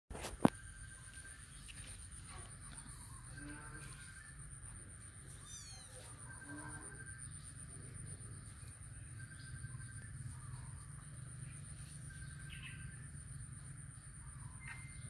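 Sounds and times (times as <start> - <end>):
steady high-pitched whine: 0.1 - 15.0
kittens mewing: 5.2 - 6.4.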